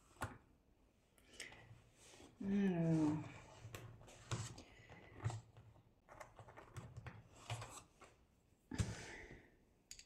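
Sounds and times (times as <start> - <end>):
pencils clicking and rustling: 3.5 - 7.9.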